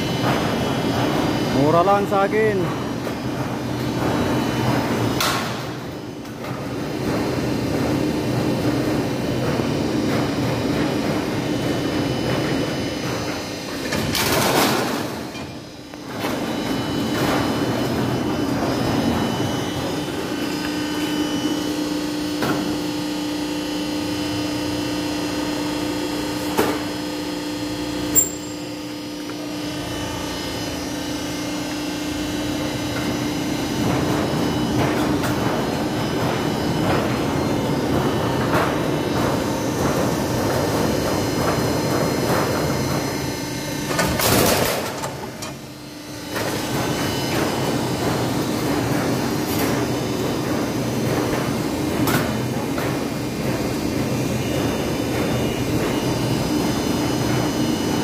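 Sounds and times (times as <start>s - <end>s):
roll forming machine humming: 0.0s - 58.0s.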